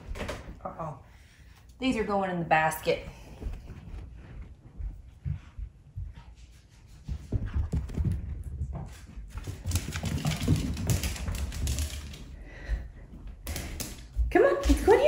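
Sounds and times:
knocks and scuffs: 0:03.2 - 0:12.2
dog claws clicking on hardwood: 0:09.4 - 0:12.3, 0:13.4 - 0:15.0.

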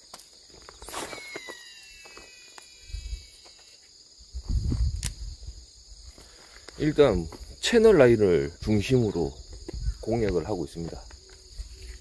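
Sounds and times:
insects chirping: 0:00.0 - 0:12.0
fishing reel spool whining: 0:00.8 - 0:03.8
sharp click: 0:05.0 - 0:05.2.

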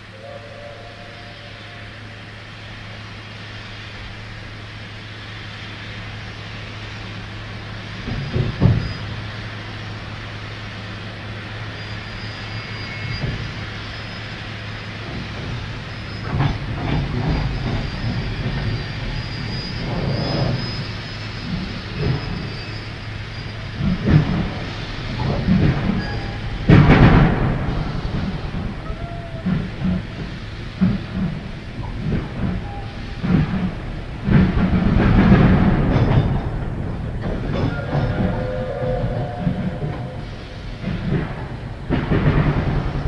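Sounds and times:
steam train rumble: 0:00.0 - 0:43.0
high squeal: 0:00.1 - 0:02.4, 0:11.6 - 0:14.3, 0:17.3 - 0:23.7, 0:25.9 - 0:26.6, 0:37.5 - 0:40.9.

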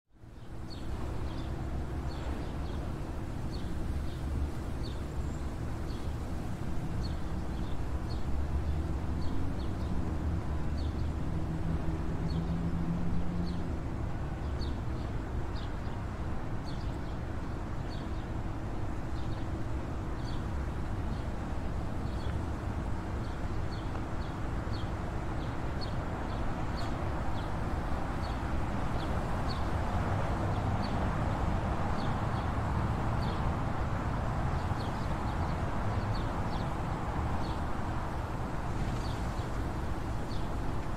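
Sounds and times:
sparrows chirping: 0:00.4 - 0:06.3, 0:16.6 - 0:18.4, 0:23.1 - 0:33.5, 0:34.4 - 0:40.7.

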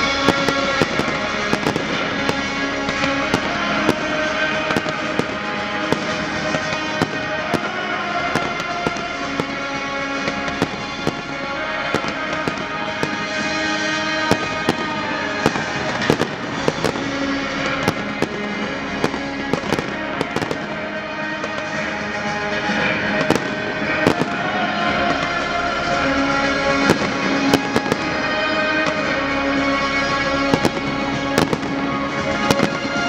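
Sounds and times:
fireworks bangs: 0:00.0 - 0:33.0
music with sustained notes: 0:00.0 - 0:33.0.

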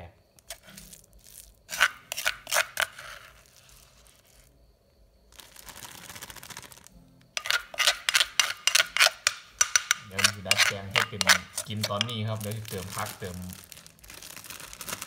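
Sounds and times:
plastic packaging clicks and crinkles: 0:05.4 - 0:06.9, 0:11.7 - 0:15.0.

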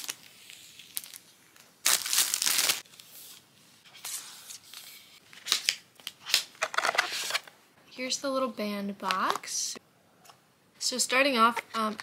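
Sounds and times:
plastic wrap crinkling and tearing: 0:00.0 - 0:03.0.

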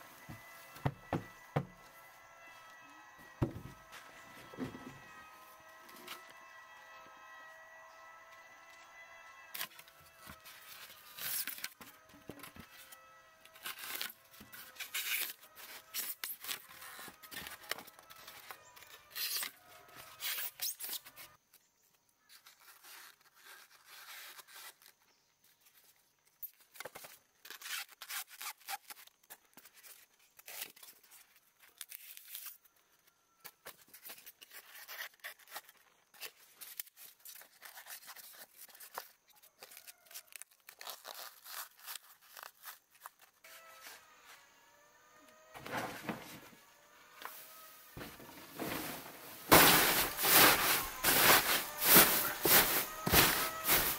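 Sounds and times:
knife cutting polystyrene foam: 0:09.4 - 0:21.3, 0:22.3 - 0:25.0, 0:27.4 - 0:31.1, 0:33.9 - 0:44.2, 0:47.2 - 0:53.9
foam rubbing and scraping: 0:47.2 - 0:53.9.

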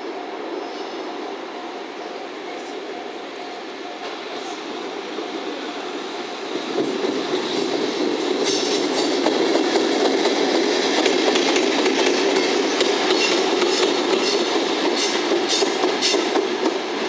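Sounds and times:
train wheels rumbling on rails: 0:00.0 - 0:17.0
wheels clacking over rail joints: 0:08.4 - 0:16.8.

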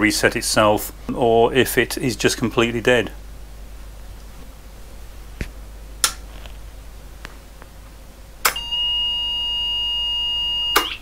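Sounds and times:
high steady beep: 0:08.6 - 0:10.9.

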